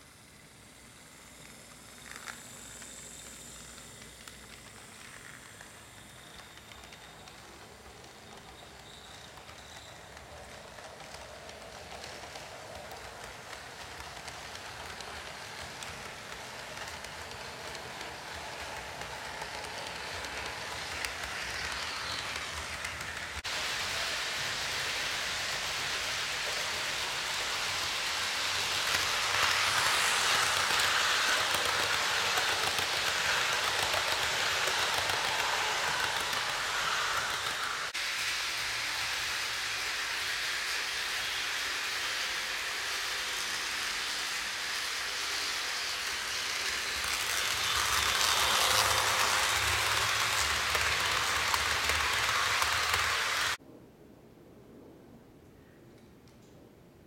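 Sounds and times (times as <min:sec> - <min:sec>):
model train wheels rattling on rails: 0:00.0 - 0:53.6.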